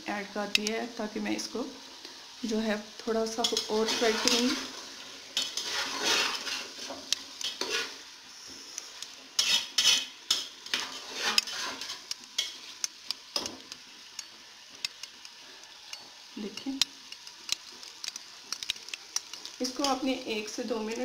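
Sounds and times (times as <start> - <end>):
oil sizzling: 0.0 - 21.0
metal spatula scraping a pot: 3.4 - 8.1, 9.4 - 12.8.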